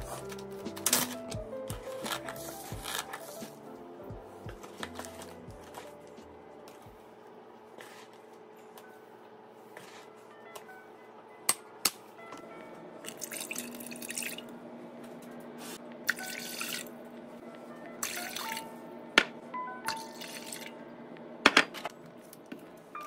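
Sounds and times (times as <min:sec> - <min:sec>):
background music: 0:00.0 - 0:07.2, 0:16.1 - 0:21.0.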